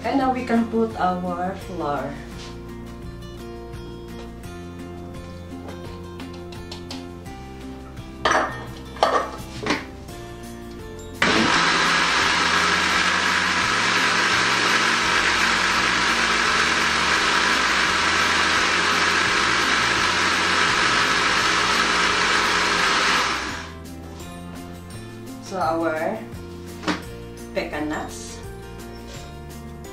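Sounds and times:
electric blender running: 0:11.2 - 0:23.8.

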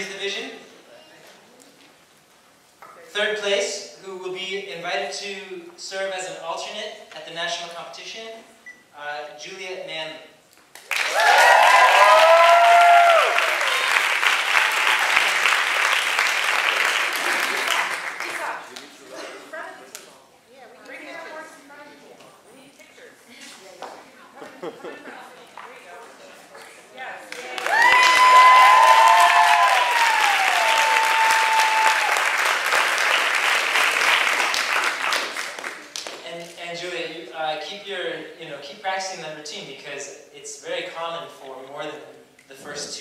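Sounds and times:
audience applauding: 0:10.8 - 0:18.9, 0:27.3 - 0:36.2
people cheering: 0:10.9 - 0:18.2, 0:27.3 - 0:34.3.

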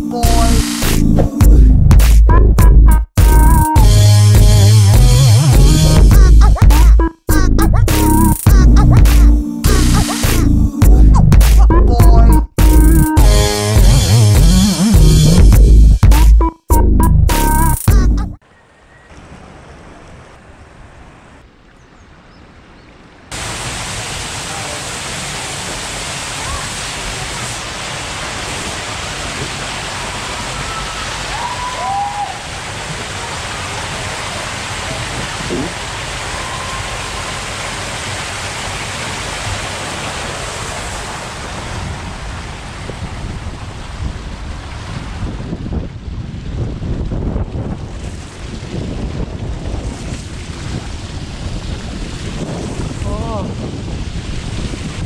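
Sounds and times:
water rushing down slide: 0:23.3 - 0:55.0
wind buffeting microphone: 0:41.7 - 0:55.0.

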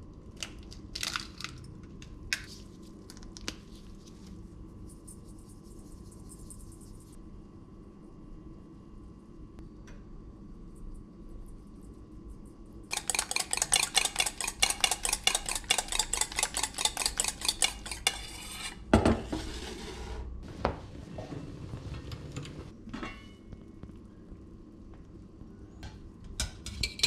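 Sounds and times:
fork clinking in metal bowl: 0:12.9 - 0:18.4.

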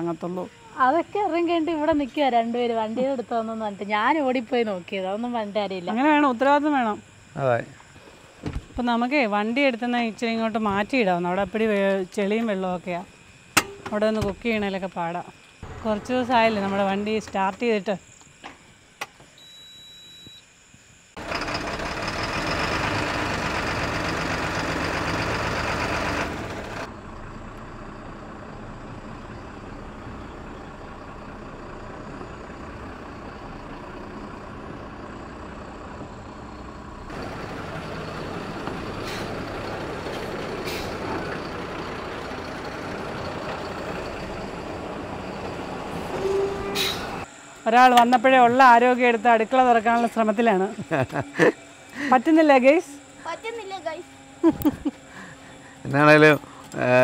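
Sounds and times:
diesel lorry engine running: 0:15.6 - 0:17.9, 0:21.2 - 0:57.0.

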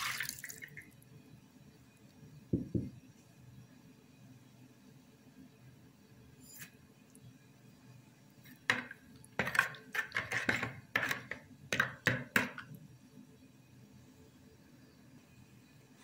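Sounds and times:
spoon stirring in a bowl: 0:08.5 - 0:12.7.

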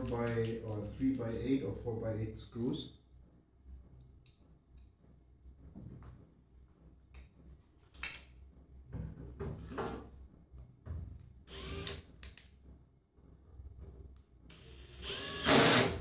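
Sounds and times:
cordless drill whirring: 0:11.5 - 0:12.0, 0:14.6 - 0:16.0.

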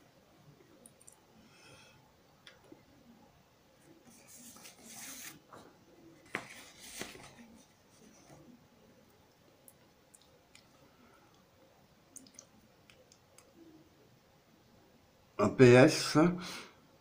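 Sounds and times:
paper rustling: 0:04.0 - 0:08.5.

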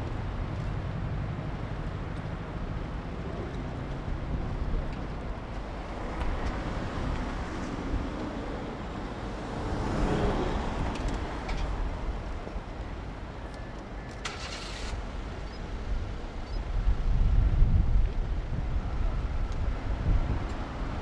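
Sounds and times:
road traffic rumble: 0:00.0 - 0:21.0
vehicle passing: 0:05.9 - 0:11.4.

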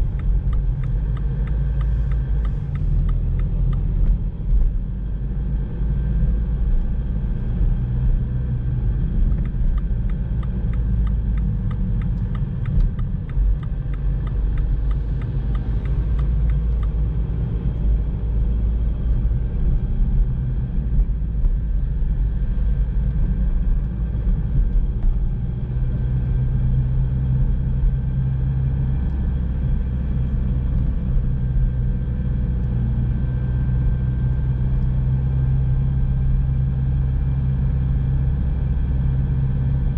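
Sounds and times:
faint regular ticking: 0:00.0 - 0:04.1, 0:09.2 - 0:17.8
car engine and tyres rumbling: 0:00.0 - 0:39.9.

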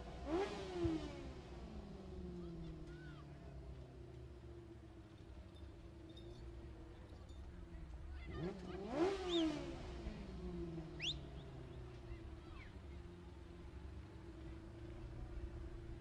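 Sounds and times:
race car engine revving: 0:00.0 - 0:02.7, 0:08.3 - 0:11.8.

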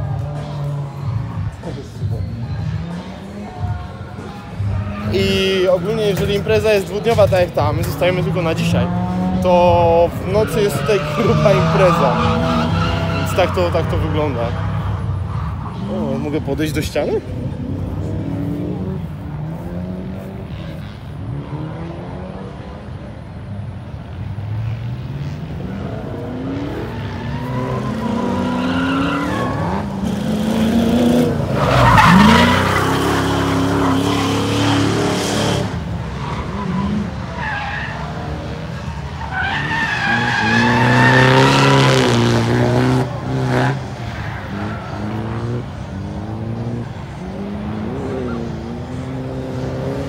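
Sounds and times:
car engines revving: 0:00.0 - 0:50.0
tyres squealing: 0:26.5 - 0:45.6.

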